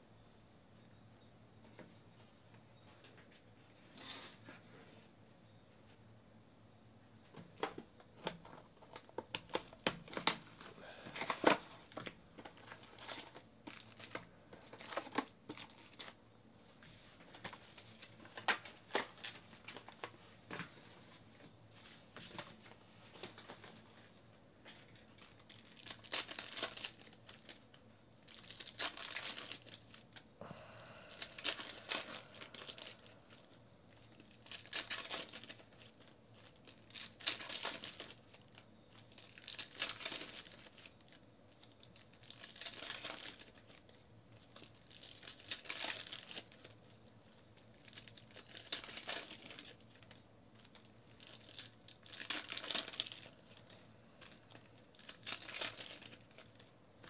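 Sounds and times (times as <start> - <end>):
foil wrappers crinkling: 8.4 - 16.2, 25.1 - 57.0
foil wrapper tearing: 25.3 - 27.7, 28.3 - 30.2, 31.1 - 33.4, 34.1 - 46.8, 47.6 - 56.7.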